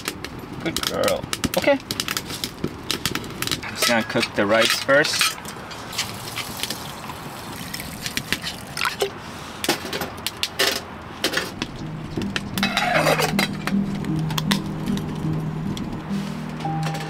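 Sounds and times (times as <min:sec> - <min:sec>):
soft background music: 0:11.6 - 0:17.0.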